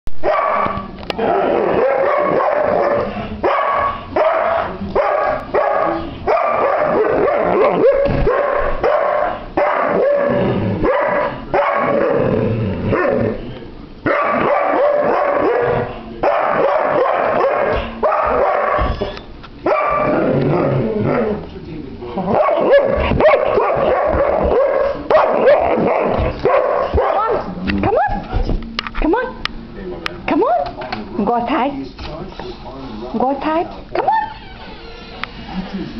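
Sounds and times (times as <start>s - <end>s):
dog barking and whining: 0.2s - 12.3s, 12.9s - 21.4s, 22.3s - 28.2s, 34.0s - 34.4s.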